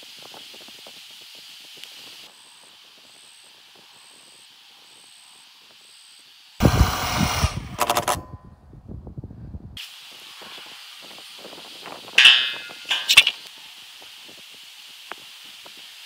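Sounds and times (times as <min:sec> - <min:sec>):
power drill driving screw: 0:06.6 - 0:08.3.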